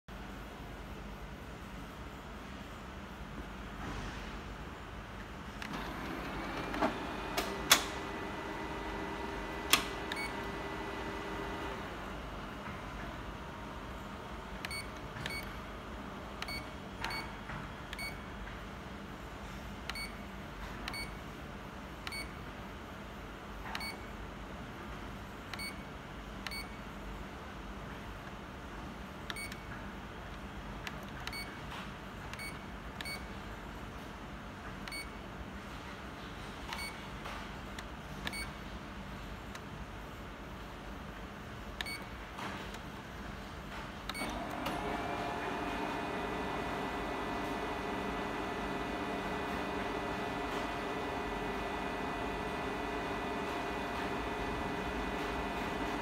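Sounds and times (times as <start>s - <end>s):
high-pitched key-press beeps: 10.1s - 10.5s, 14.6s - 15.6s, 16.4s - 18.2s, 19.9s - 20.2s, 20.8s - 21.2s, 22.0s - 22.4s, 23.7s - 24.1s, 25.5s - 25.8s, 26.5s - 26.8s, 29.2s - 29.7s, 31.0s - 31.6s, 32.3s - 33.4s, 34.8s - 35.2s, 36.7s - 37.0s, 38.2s - 38.6s, 41.8s - 42.2s.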